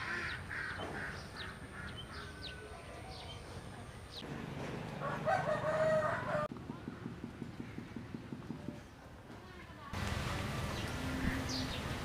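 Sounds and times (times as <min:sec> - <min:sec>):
small birds chirping: 0:00.0 - 0:04.3, 0:10.6 - 0:12.0
rooster crowing: 0:05.0 - 0:06.5.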